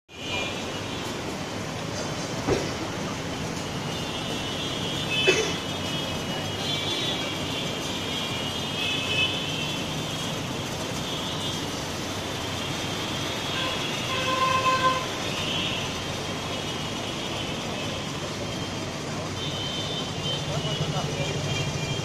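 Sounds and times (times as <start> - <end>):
vehicles in slow traffic: 0.1 - 22.0
vehicle horn: 13.4 - 15.9, 19.4 - 22.0.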